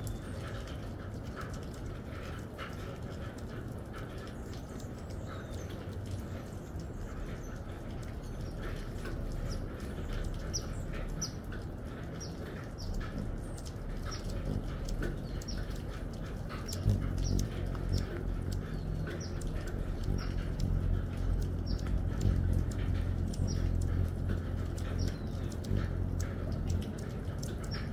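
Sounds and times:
hummingbird wings whirring: 4.4s - 27.9s
hummingbird chip calls: 6.4s - 27.9s.

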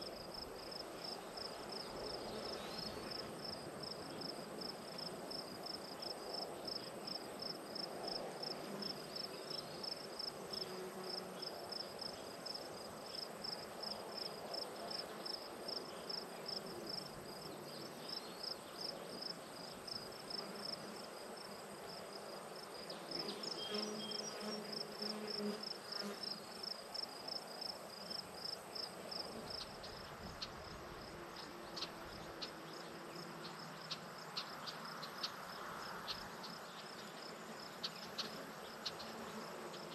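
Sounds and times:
insects chirping: 0.0s - 39.9s
flying insect buzzing: 23.0s - 26.4s.

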